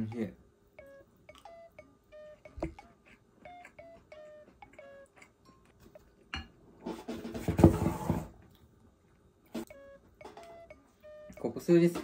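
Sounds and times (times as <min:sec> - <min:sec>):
light background music: 0:09.5 - 0:12.0.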